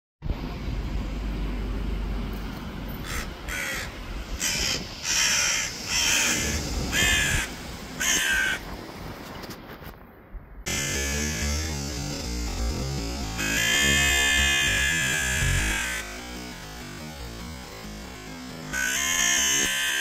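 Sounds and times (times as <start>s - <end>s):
low wind rumble: 0.2s - 18.8s
crow cawing: 3.0s - 8.6s, 13.4s - 16.1s, 18.7s - 20.0s.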